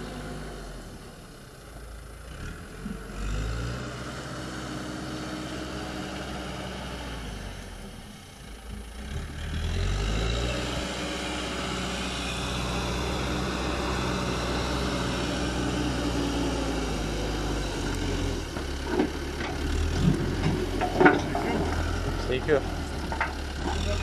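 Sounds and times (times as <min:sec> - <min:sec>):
diesel engine running: 0:00.0 - 0:24.0.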